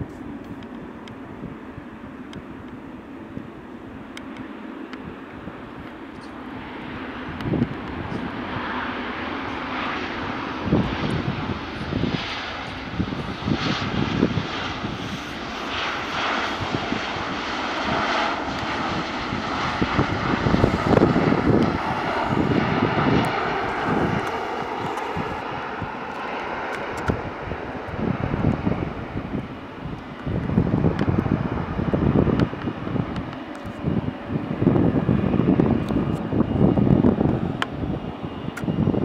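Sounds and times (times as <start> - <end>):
jet engines roaring: 0.0 - 39.0
wind buffeting microphone: 5.0 - 39.0.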